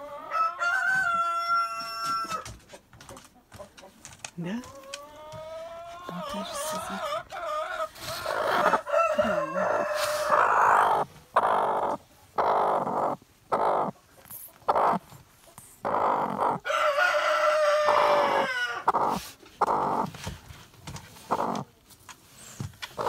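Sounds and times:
hen growling: 17.9 - 20.1.

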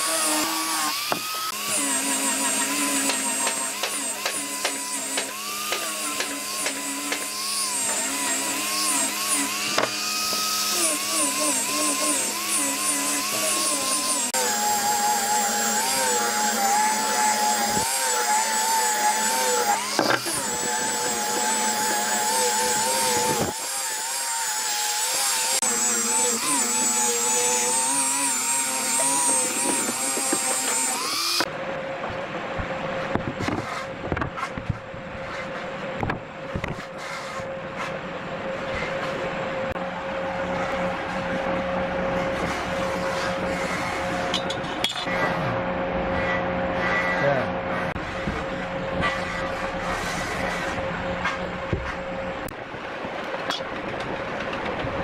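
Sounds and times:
angle grinder sanding wood: 0.0 - 31.5, 40.4 - 44.3.

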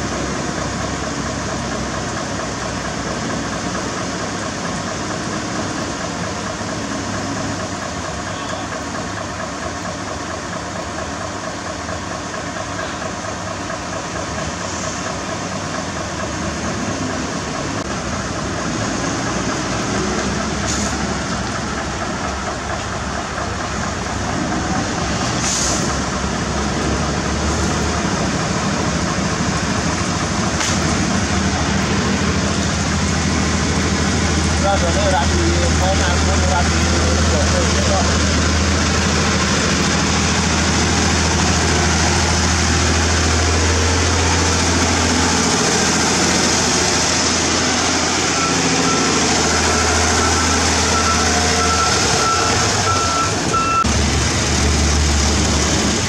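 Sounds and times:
heavy diesel engine running: 0.0 - 56.0
short hisses: 25.4 - 25.9.

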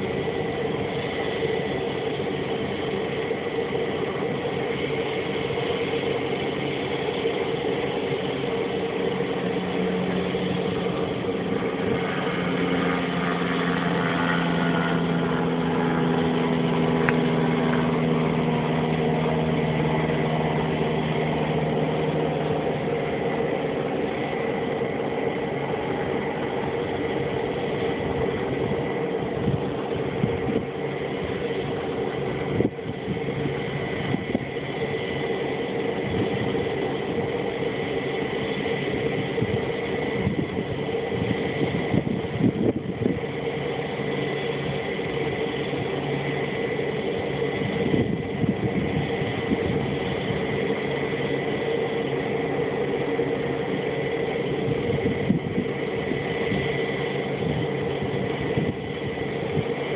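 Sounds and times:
turboprop idling whine: 0.0 - 59.9
wind buffeting microphone: 8.4 - 35.2, 35.9 - 37.9, 38.8 - 46.2, 47.0 - 51.6, 54.4 - 59.9.

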